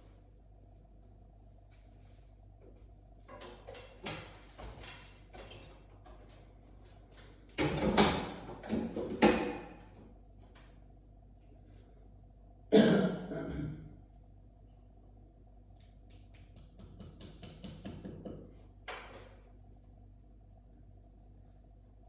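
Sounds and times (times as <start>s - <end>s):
soft rustling: 0.8s - 3.2s.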